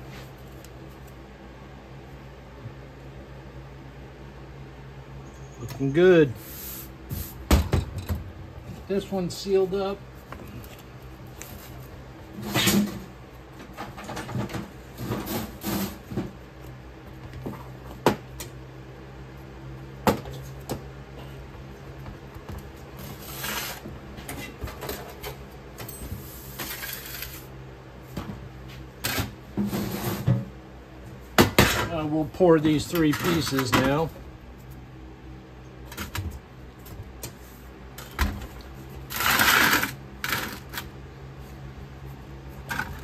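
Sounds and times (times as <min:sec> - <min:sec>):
steady low hum: 0:00.0 - 0:43.0
scraping rustles: 0:08.6 - 0:16.4, 0:22.6 - 0:27.5.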